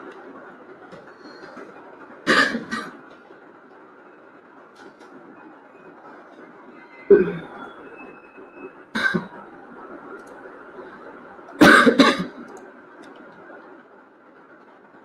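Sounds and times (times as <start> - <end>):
steady background noise: 0.0 - 15.0
person coughing: 2.3 - 2.9, 11.6 - 12.3.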